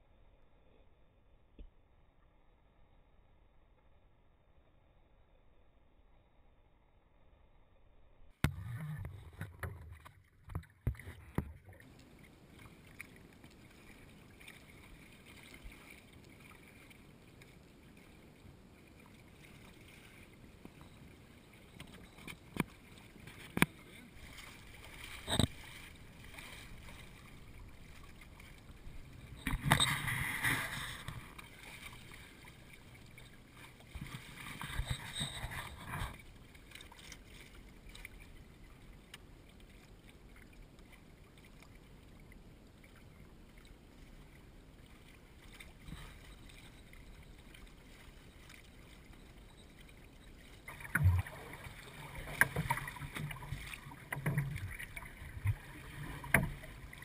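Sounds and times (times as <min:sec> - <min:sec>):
water splashing along a hull: 0:08.4 - 0:57.0.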